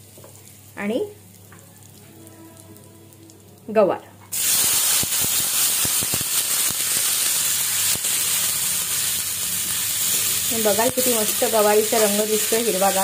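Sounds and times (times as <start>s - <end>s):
beans sizzling in hot oil: 4.3s - 13.0s.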